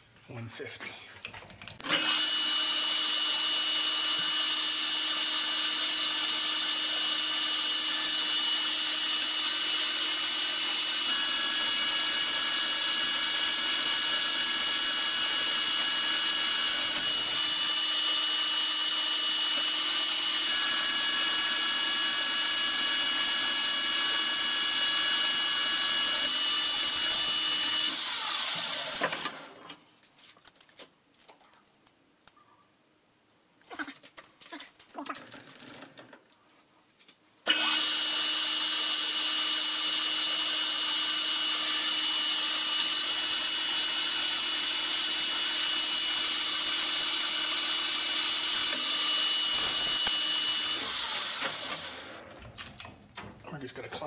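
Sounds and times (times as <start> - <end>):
metal lathe whining: 1.9 - 29.1, 37.5 - 52.3.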